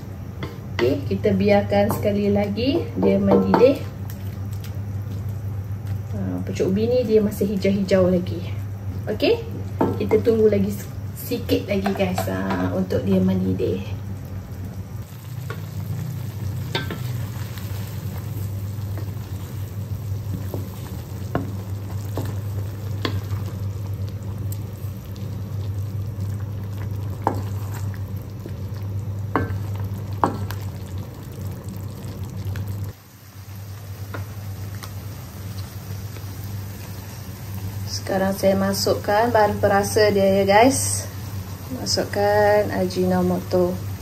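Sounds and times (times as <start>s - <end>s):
steady low hum: 0.0s - 44.0s
soup popping in wok: 15.1s - 25.4s, 26.0s - 32.7s.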